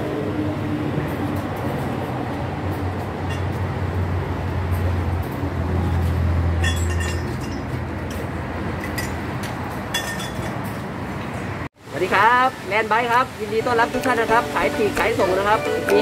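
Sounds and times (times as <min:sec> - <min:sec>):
metallic clinks of bicycle parts: 0:06.6 - 0:08.2.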